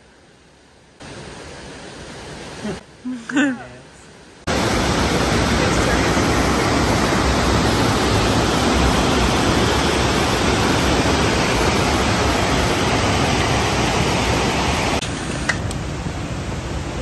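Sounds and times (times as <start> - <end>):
river rapids rushing: 4.5 - 15.4.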